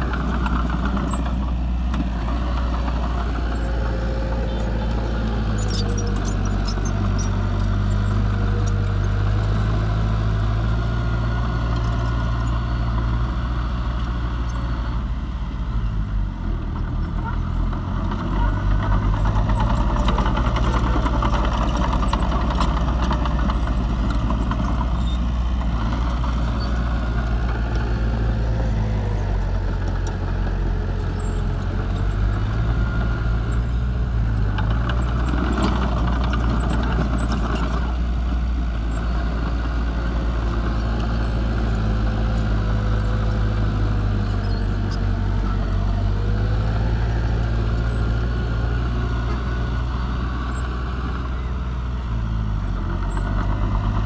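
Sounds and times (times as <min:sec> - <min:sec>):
diesel engines running: 0:00.0 - 0:54.0.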